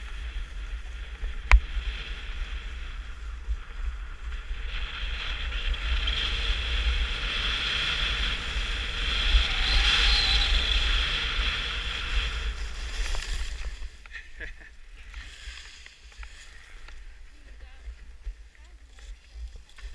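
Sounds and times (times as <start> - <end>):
skis hissing over snow: 0.0 - 14.1, 15.0 - 17.5
wind buffeting microphone: 0.0 - 14.1.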